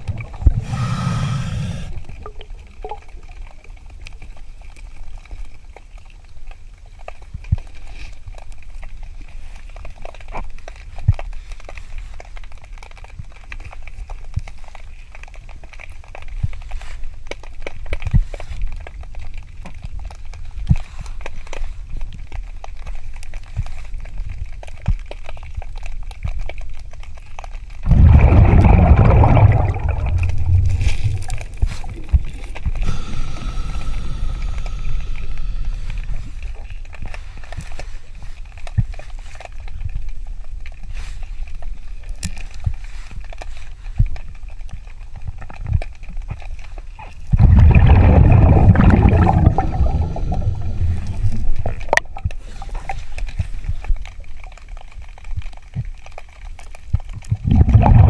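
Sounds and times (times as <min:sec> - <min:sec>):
underwater low rumble: 0:00.0 - 0:07.8, 0:27.6 - 0:42.0, 0:44.0 - 0:55.2, 0:57.1 - 0:58.0
regulator bubbles rushing: 0:27.8 - 0:36.4, 0:47.3 - 0:52.3, 0:57.3 - 0:58.0.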